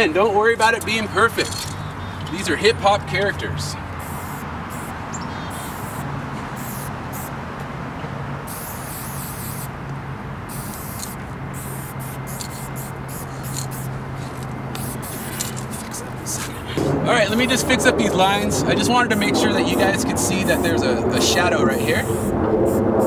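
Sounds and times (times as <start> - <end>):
spray paint can hissing: 4.0 - 6.0, 6.6 - 7.3, 8.5 - 9.7, 10.5 - 16.7, 18.8 - 23.0
steady low hum: 8.5 - 23.0.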